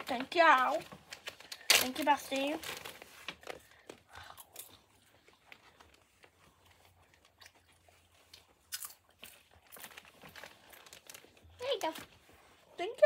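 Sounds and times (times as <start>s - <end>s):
soft rustling: 9.4s - 13.0s.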